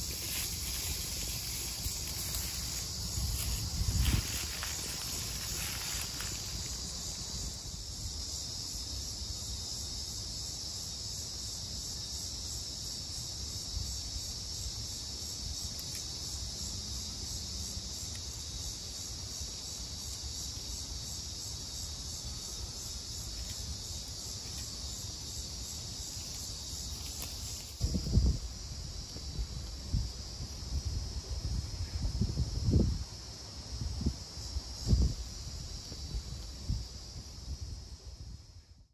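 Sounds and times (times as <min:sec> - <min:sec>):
wind rumble on microphone: 0:00.0 - 0:08.7, 0:24.5 - 0:38.9
high-pitched insect chorus: 0:00.0 - 0:38.9.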